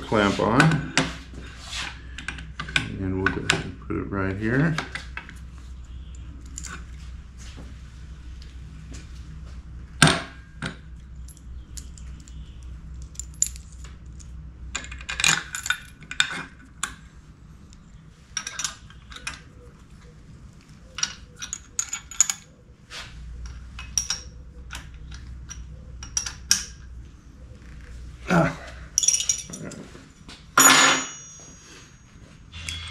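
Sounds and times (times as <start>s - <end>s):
steel parts clinking and knocking: 10.0s - 17.0s, 18.3s - 19.6s, 20.9s - 22.5s, 23.4s - 27.0s, 29.0s - 29.8s, 30.6s - 32.9s.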